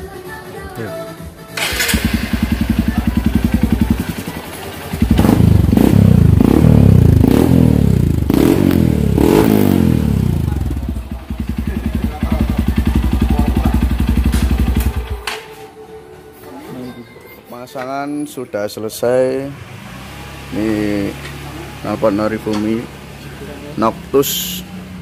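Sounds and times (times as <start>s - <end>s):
motorcycle engine idling and revving: 1.6s - 15.3s, 19.4s - 25.0s.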